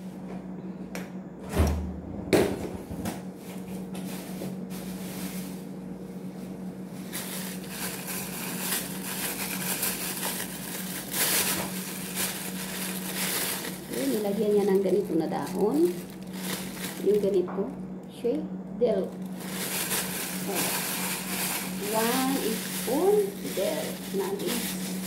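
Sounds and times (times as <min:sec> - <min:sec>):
steady low hum: 0:00.0 - 0:25.0
refrigerator door thud: 0:01.4 - 0:03.2
rummaging inside fridge: 0:02.5 - 0:17.6, 0:19.2 - 0:25.0
plastic bag rustling: 0:03.3 - 0:17.5, 0:19.0 - 0:25.0.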